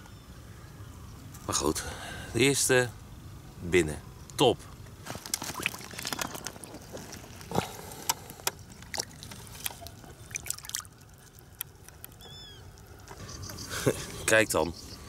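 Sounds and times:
water splashing and dripping: 5.2s - 7.6s, 8.6s - 13.2s.

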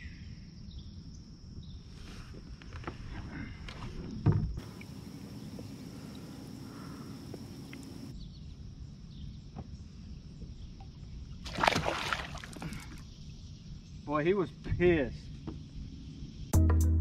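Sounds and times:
outdoor background noise: 0.0s - 16.6s
fish splashing in water: 11.5s - 13.0s.

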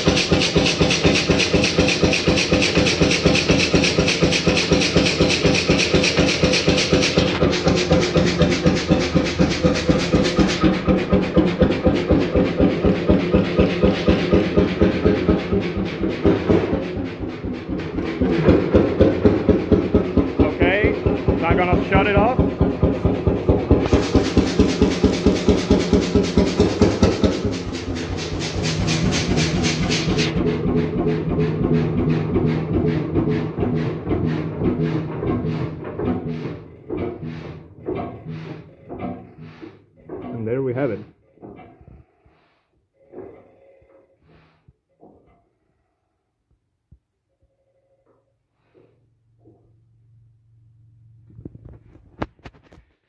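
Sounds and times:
hiss: 0.0s - 10.8s, 23.9s - 30.4s
oil engine firing beat: 0.0s - 39.5s.

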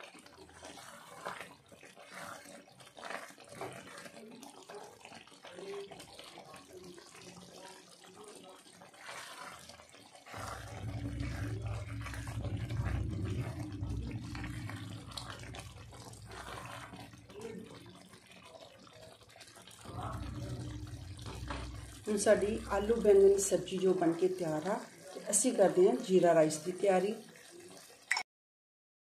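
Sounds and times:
spatula stirring curry: 0.0s - 28.0s
thick curry bubbling: 0.0s - 28.1s
steady low rumble: 10.4s - 17.9s, 19.8s - 23.9s.

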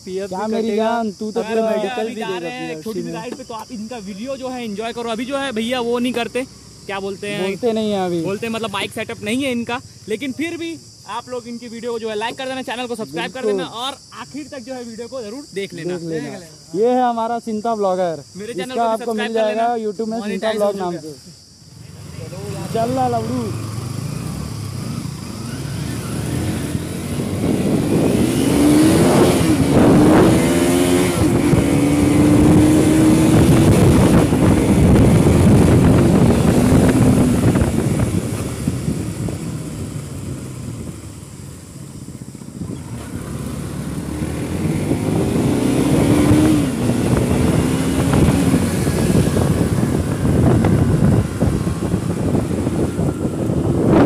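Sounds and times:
wind and road rush: 0.0s - 17.2s, 18.5s - 54.0s
motorcycles accelerating: 21.7s - 54.0s.

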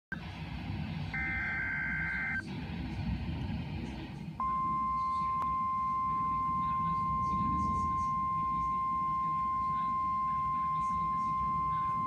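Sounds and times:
faint radio static: 0.1s - 12.0s
weather radio alarm tone: 1.1s - 2.5s, 4.4s - 12.0s
digital alert data tones: 1.2s - 2.4s.

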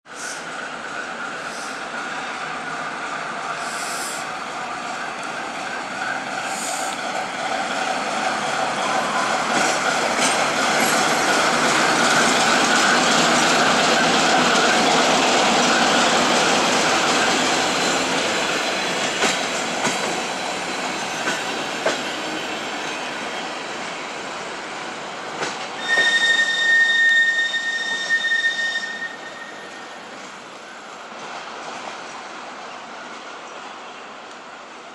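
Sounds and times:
train coaches rumbling past: 0.1s - 34.9s
high steady whistle: 25.8s - 30.2s.

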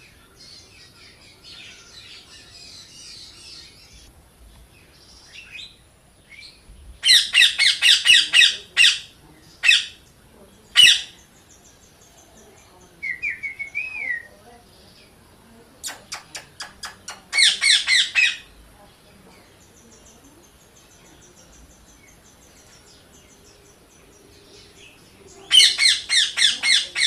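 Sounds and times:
parrot chirping softly: 4.7s - 27.0s
parrot screeching: 17.4s - 18.5s.

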